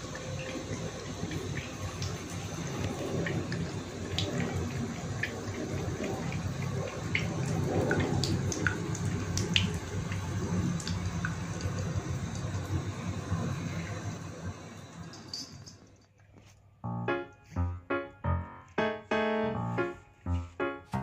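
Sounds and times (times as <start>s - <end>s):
cat lapping water: 0.0s - 15.6s
tap water trickling into basin: 0.0s - 16.1s.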